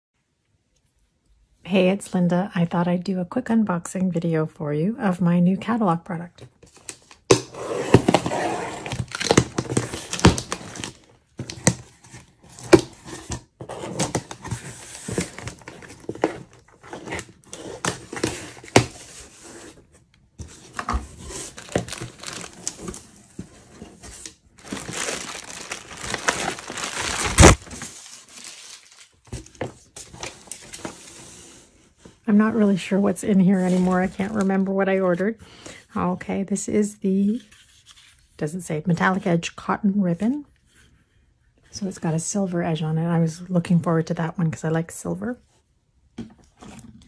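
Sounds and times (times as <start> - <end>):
plastic packing crinkling: 6.6 - 19.8, 20.4 - 31.2
packing tape tearing and peeling: 6.7 - 11.9, 20.7 - 23.1, 24.2 - 29.5
cardboard flaps scraping: 7.4 - 32.1.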